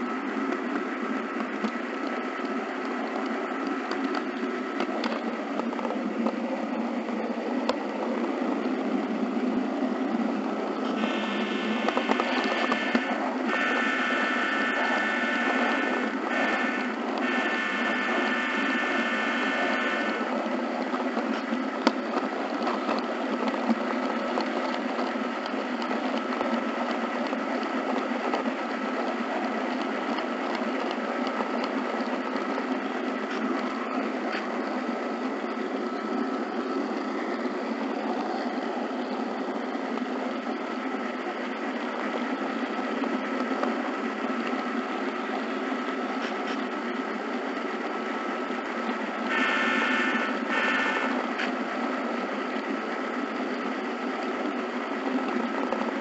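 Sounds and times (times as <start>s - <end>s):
faint steady whine: 0.0s - 56.0s
model train rolling on track: 0.0s - 56.0s.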